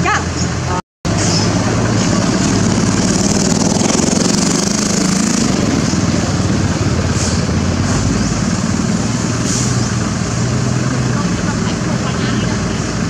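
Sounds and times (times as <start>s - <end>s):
small engine running: 1.2s - 9.2s.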